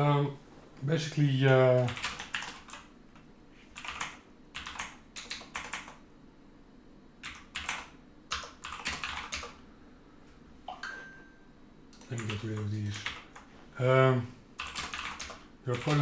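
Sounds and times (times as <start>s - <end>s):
typing on computer keyboard: 1.7s - 2.9s, 3.8s - 6.0s, 7.2s - 9.6s, 11.9s - 13.5s, 14.6s - 16.0s.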